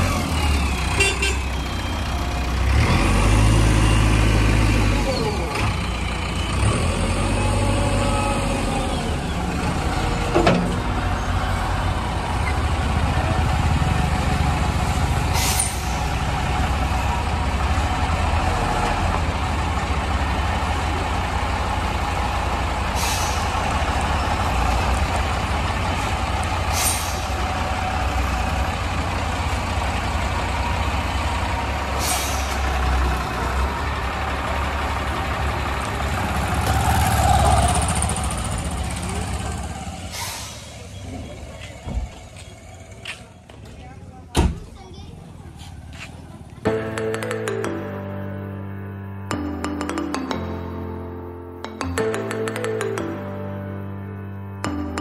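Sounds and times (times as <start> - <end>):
diesel truck engine running: 0.0 - 55.0
air brake hisses: 15.3 - 16.2, 22.9 - 23.6, 26.7 - 27.4, 32.0 - 32.7, 40.0 - 40.9.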